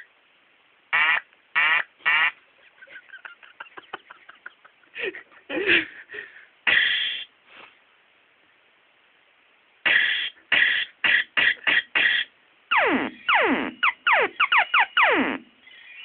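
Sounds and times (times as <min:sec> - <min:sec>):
buzzy keyboard calls: 0:06.7 - 0:07.3, 0:09.9 - 0:16.0.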